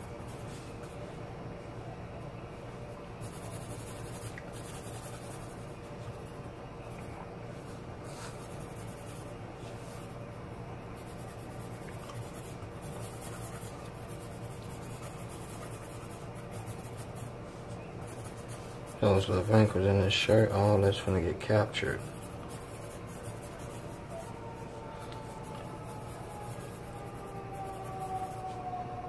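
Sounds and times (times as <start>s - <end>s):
steady low hum: 0.0s - 29.0s
pencil scratching on paper: 3.2s - 24.4s, 25.4s - 28.6s.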